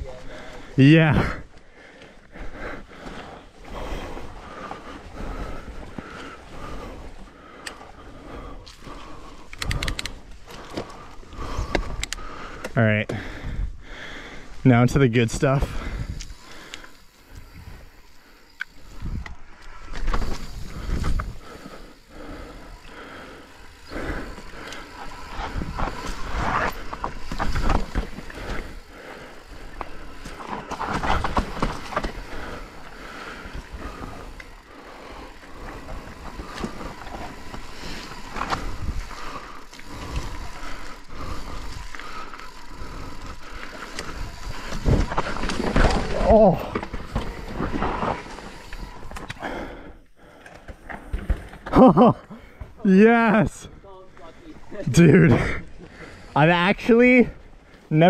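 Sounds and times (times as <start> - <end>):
tyres rolling and skidding on rock: 18.8 - 49.4
bike knocks and rattles: 29.8 - 32.8, 44.0 - 49.3.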